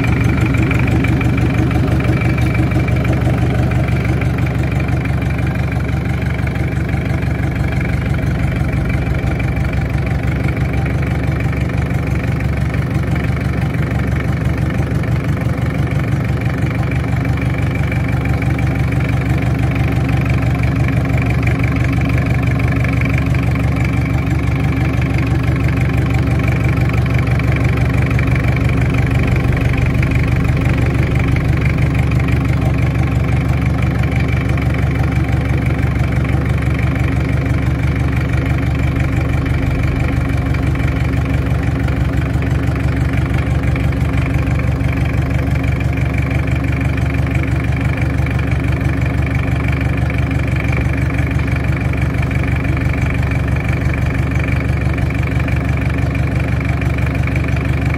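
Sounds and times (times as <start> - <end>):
diesel engine idling: 0.0 - 57.9.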